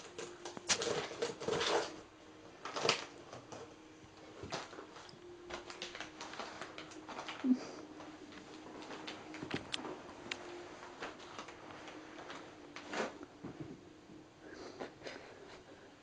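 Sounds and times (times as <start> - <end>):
plastic bag crinkling: 0.0 - 3.7, 4.4 - 13.2.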